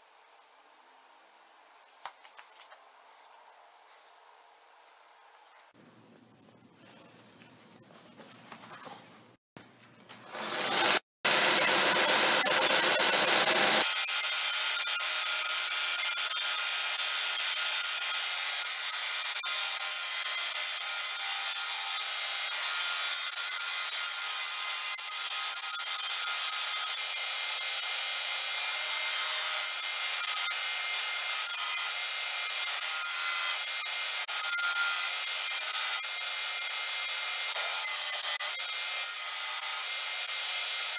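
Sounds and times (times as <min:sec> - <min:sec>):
belt sander running: 0:10.3 - 0:13.8.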